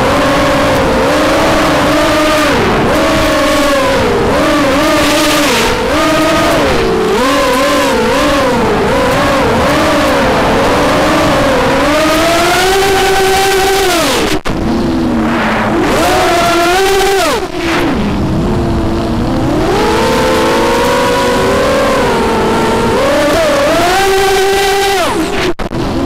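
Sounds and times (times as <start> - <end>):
drone motors whining: 0.0 - 26.0
rush of air: 14.6 - 16.1.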